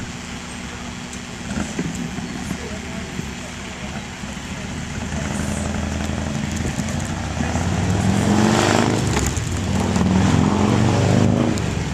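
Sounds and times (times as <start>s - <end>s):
vehicle engine accelerating: 0.0s - 11.9s.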